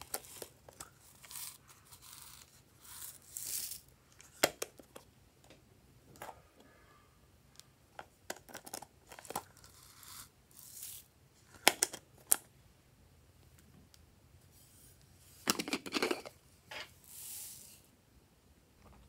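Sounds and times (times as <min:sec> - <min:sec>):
soft hiss: 0:16.4 - 0:19.0.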